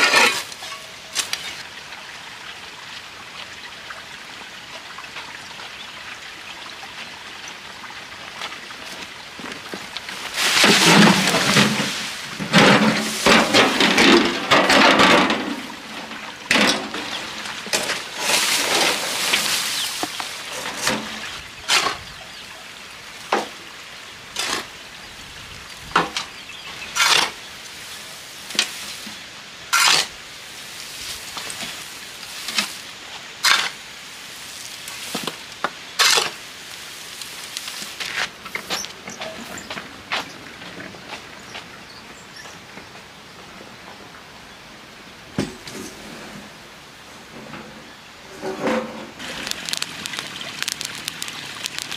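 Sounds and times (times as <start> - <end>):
shovel scraping across concrete: 0.0 - 1.6, 17.7 - 21.0, 27.0 - 27.4, 29.7 - 30.1, 33.4 - 33.8, 36.0 - 36.4
dry brush rustling and crunching: 8.8 - 15.1, 16.6 - 22.1, 26.7 - 41.3, 48.4 - 51.9.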